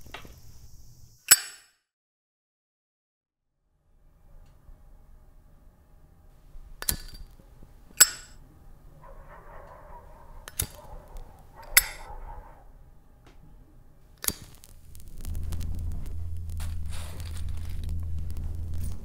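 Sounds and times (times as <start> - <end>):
low steady hum: 3.7 - 19.0
lighter lid metallic clicks: 6.8 - 7.3, 8.0 - 8.4, 10.4 - 12.1, 14.2 - 14.7
faint lighter hiss: 10.4 - 12.1, 14.1 - 19.0.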